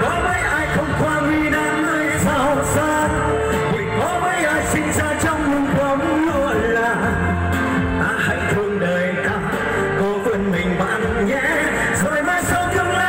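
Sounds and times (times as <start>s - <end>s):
amplified backing music: 0.0s - 13.0s
man singing into microphone: 0.0s - 13.0s.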